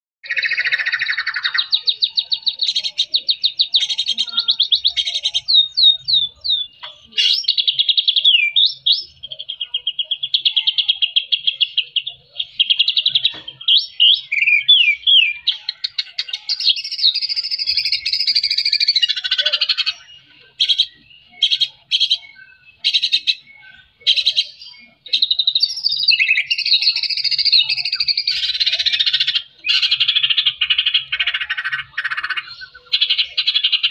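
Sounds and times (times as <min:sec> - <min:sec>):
songbird singing trills and whistles: 0:00.2 - 0:33.9.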